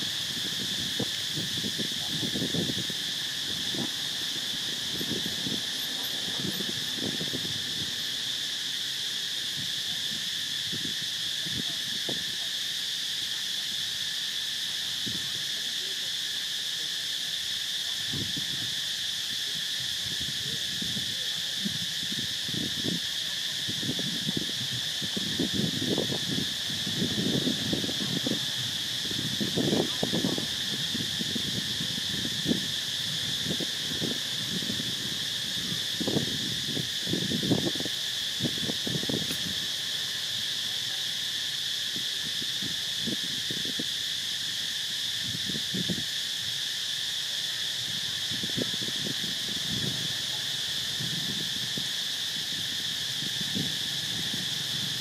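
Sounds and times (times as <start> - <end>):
high insect chorus: 0.0 - 55.0.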